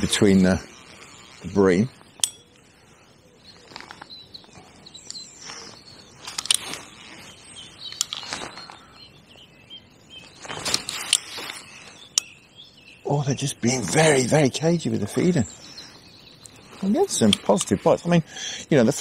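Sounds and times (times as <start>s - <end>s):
faint birdsong: 0.0s - 19.0s
short rustles: 5.4s - 9.0s, 10.2s - 12.1s
sharp clicks: 6.2s - 6.9s, 7.8s - 8.8s.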